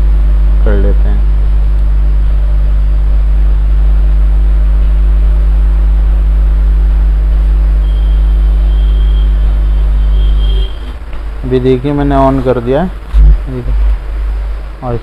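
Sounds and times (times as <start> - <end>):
electrical mains hum: 0.0 - 15.0
faint high whine: 0.0 - 15.0.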